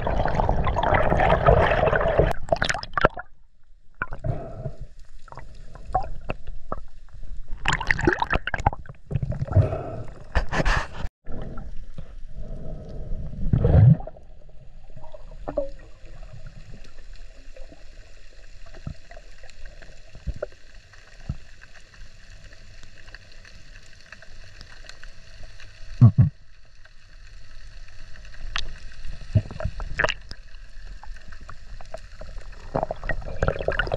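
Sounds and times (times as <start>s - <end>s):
water gurgling and sloshing: 0.0s - 33.9s.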